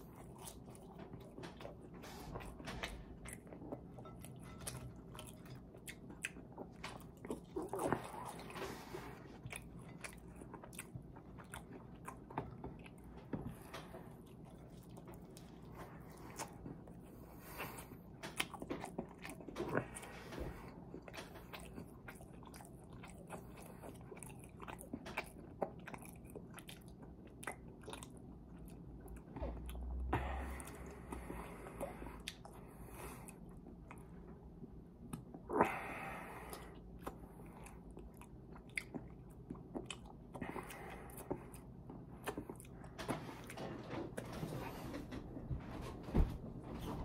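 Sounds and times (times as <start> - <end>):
person chewing food: 0.0 - 45.3.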